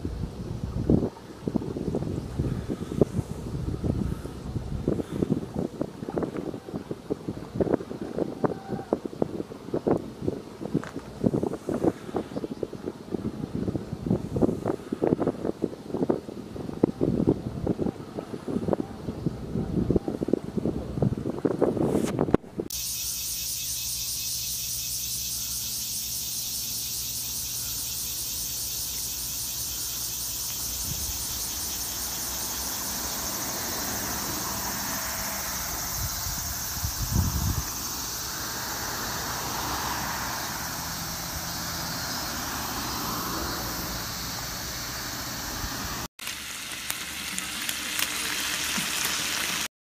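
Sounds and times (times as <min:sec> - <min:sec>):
cicadas singing: 0:22.7 - 0:49.7
car driving past: 0:31.4 - 0:36.9, 0:37.6 - 0:46.1
beef sizzling on a hot plate: 0:46.2 - 0:49.7.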